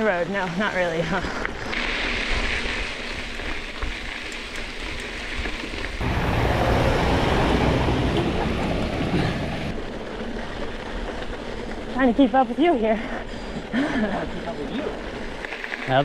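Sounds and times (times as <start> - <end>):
bike tyres rolling on gravel: 0.0 - 16.0
pickup truck passing on gravel: 6.0 - 11.8.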